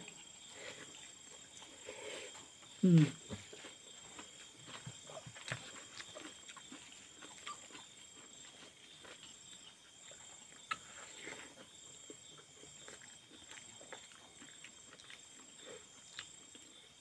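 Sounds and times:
chewing and lip-smacking: 3.4 - 17.0.

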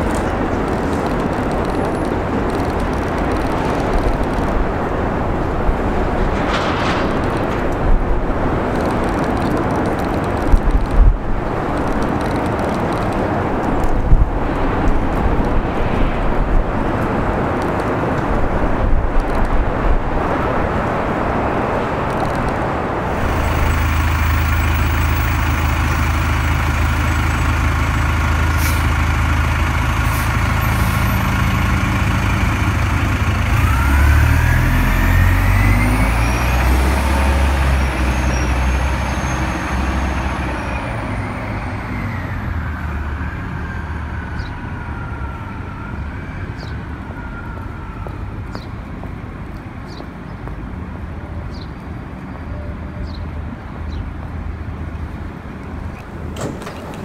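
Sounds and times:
bus engine pulling away: 0.0 - 57.0
engine whine rising and falling: 22.3 - 47.0.

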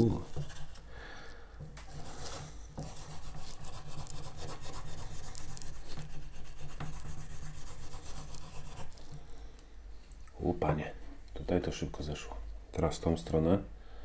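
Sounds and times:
eraser rubbing on steel blade: 1.9 - 9.2.

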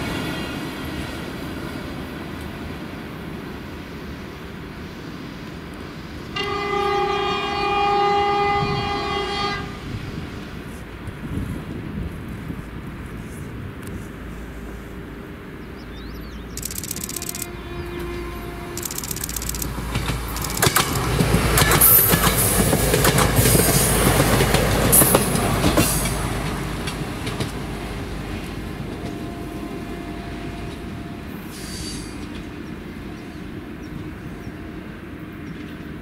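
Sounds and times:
railbus running noise: 0.0 - 36.0
wheels clicking over rails: 16.5 - 17.5, 18.8 - 27.6.

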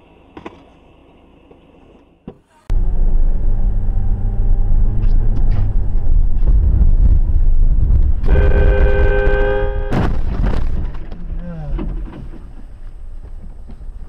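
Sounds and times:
vehicle driving rumble: 2.7 - 14.0
horn blast: 8.2 - 10.1.

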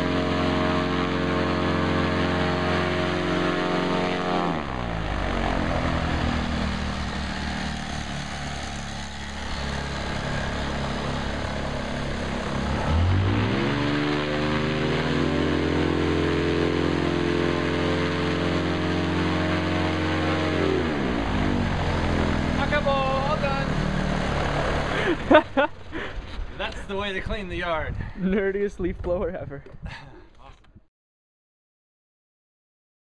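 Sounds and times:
paramotor engine and propeller: 0.0 - 27.4.

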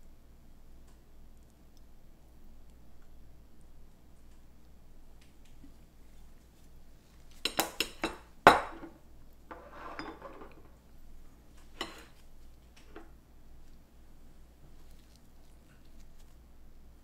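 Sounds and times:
utensil clinking against dish: 9.5 - 10.7, 11.8 - 12.1.

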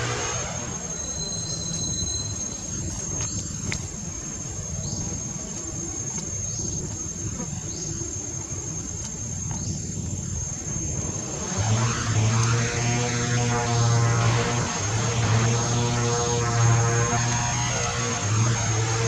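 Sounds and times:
high-pitched insect drone: 0.0 - 19.0.

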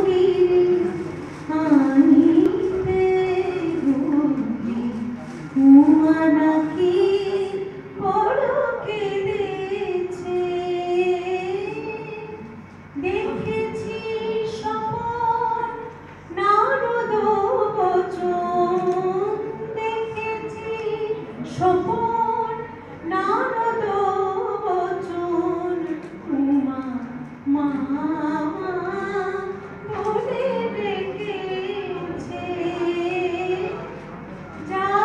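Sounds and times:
woman singing into microphone: 0.0 - 33.9, 34.6 - 35.0.

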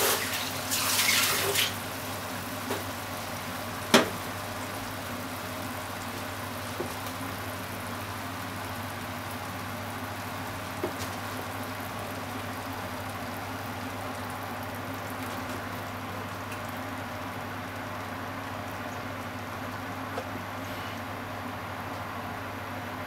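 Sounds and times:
sauce simmering in a frying pan: 0.0 - 22.7
small pops from the pan: 3.9 - 4.2, 10.8 - 11.2.

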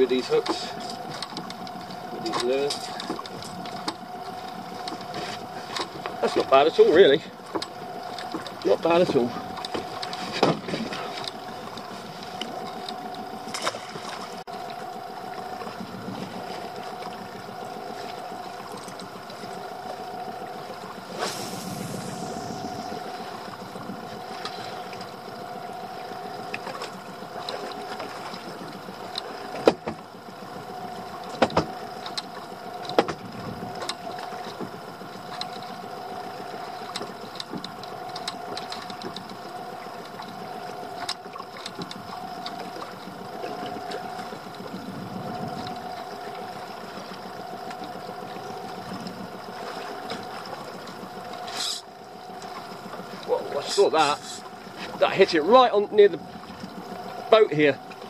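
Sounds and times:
steady hum: 0.0 - 58.0
rod knocking against boat: 7.5 - 14.3, 29.1 - 30.1, 31.3 - 34.7.

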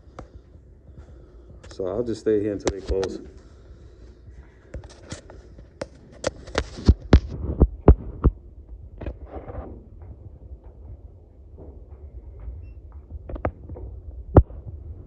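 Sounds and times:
sharp clicks and knocks: 4.7 - 15.0
low rumble: 7.3 - 15.0.

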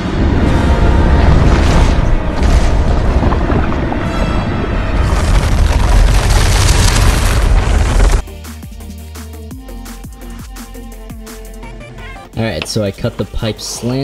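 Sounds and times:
deep booming rumble: 0.0 - 8.2
dramatic music: 0.0 - 12.9.

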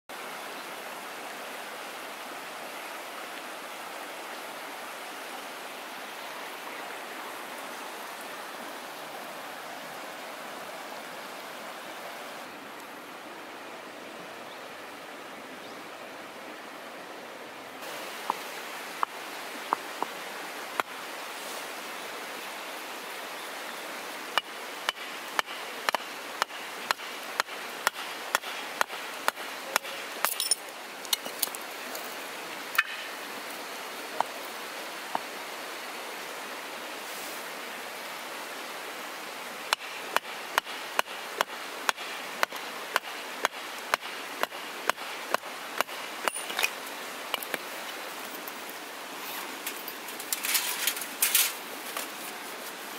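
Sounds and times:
steady hiss: 16.8 - 52.9
hatchet chopping wood: 24.4 - 30.4, 39.7 - 46.5.

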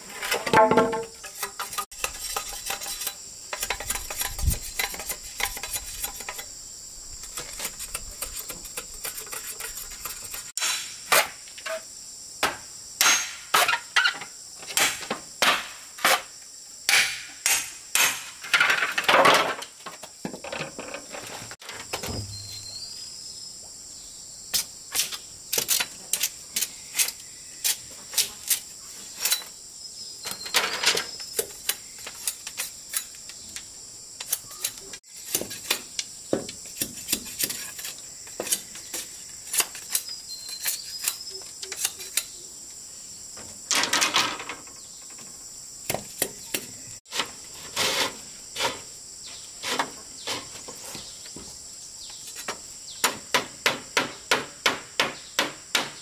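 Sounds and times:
insects buzzing: 0.0 - 56.0.

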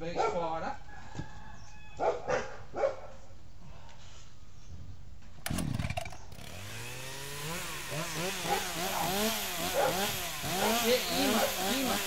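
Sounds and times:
starter cord pull: 5.4 - 6.8
chainsaw engine revving: 5.4 - 12.0.

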